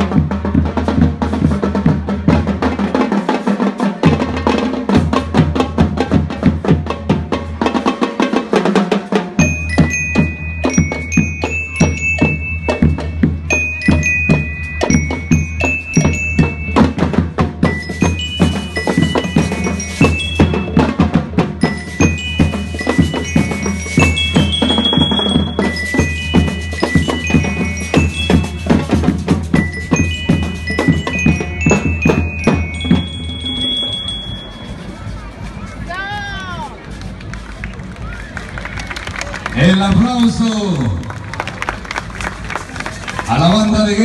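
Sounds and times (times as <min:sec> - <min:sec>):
snare and bass drums beating: 0:00.0 - 0:38.5
bell lyre melody: 0:09.4 - 0:35.9.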